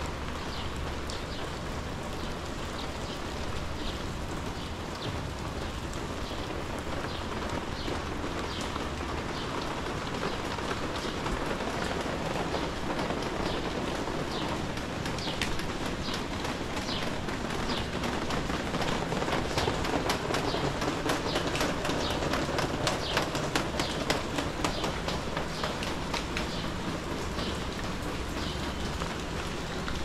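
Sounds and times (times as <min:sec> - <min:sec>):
steady rain: 0:00.0 - 0:30.0.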